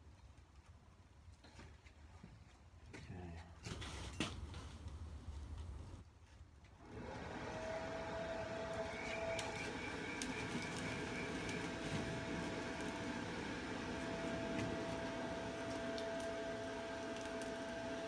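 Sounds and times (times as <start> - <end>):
air blower whine and hiss: 6.8 - 18.0.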